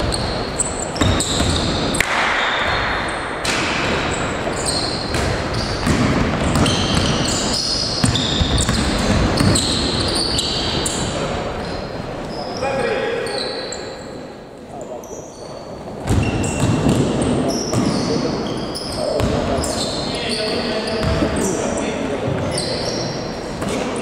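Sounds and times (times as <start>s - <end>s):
sneakers squeaking on court: 0.0s - 14.0s, 15.0s - 24.0s
basketball bouncing on floor: 5.1s - 7.3s, 8.0s - 9.8s, 16.0s - 18.0s, 19.2s - 19.5s, 21.0s - 21.3s.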